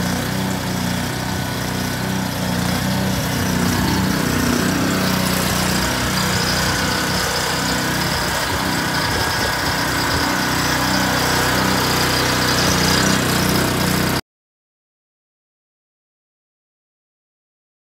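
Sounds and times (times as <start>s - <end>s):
small petrol engine idling: 0.0s - 14.2s.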